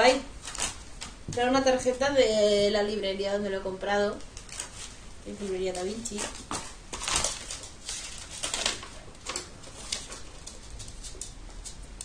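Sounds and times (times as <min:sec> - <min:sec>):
paper rustling and crinkling: 0:00.4 - 0:01.2, 0:04.2 - 0:11.8.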